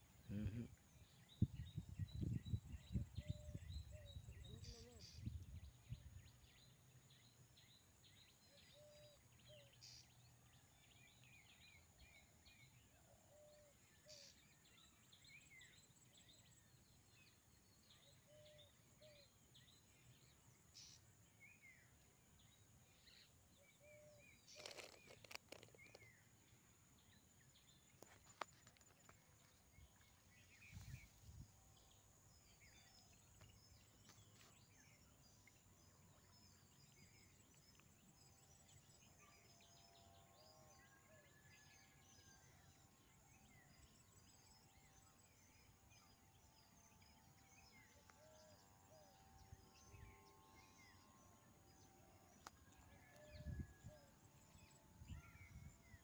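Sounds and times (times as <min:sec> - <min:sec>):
faint bird chirps: 0:00.0 - 0:56.0
brief rustle: 0:24.5 - 0:26.2.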